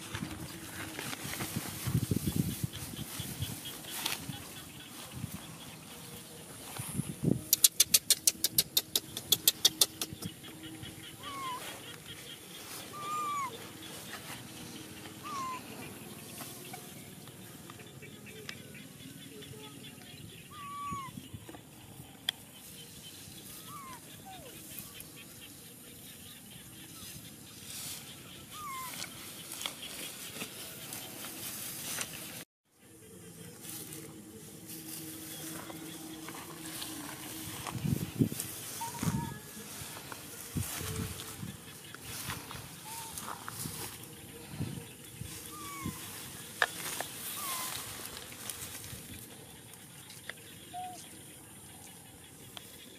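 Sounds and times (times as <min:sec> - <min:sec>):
rustling of plants: 0:00.0 - 0:19.2, 0:20.2 - 0:32.5, 0:33.1 - 0:52.9
baby macaque cooing: 0:07.5 - 0:14.0, 0:15.0 - 0:16.0, 0:20.4 - 0:21.3, 0:23.6 - 0:25.5, 0:28.3 - 0:29.2, 0:38.8 - 0:39.6, 0:42.8 - 0:43.3, 0:45.4 - 0:46.1, 0:47.3 - 0:47.9.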